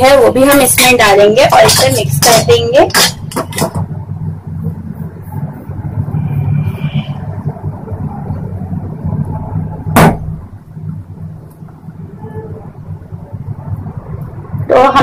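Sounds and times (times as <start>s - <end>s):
low rumble: 3.8s - 15.0s
sharp knock: 9.9s - 10.4s.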